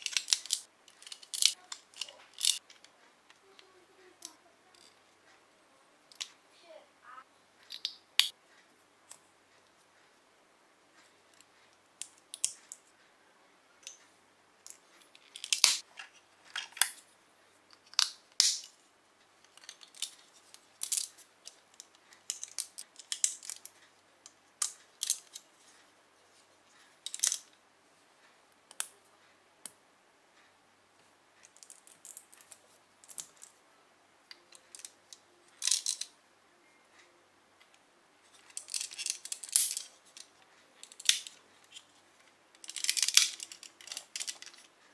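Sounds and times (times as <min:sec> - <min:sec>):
plastic bricks clicking together: 0:00.0 - 0:02.9, 0:11.4 - 0:12.8, 0:14.6 - 0:15.9, 0:17.7 - 0:18.7, 0:19.5 - 0:23.7, 0:27.0 - 0:27.5, 0:35.6 - 0:36.1, 0:38.4 - 0:41.8, 0:42.6 - 0:44.7.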